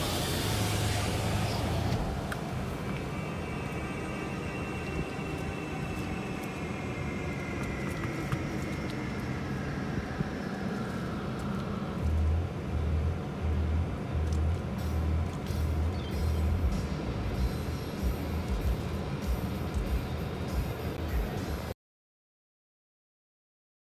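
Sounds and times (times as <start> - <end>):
vehicle whine falling in pitch: 0.0 - 12.7
passing traffic: 0.0 - 21.8
low bass music beat: 12.0 - 21.7.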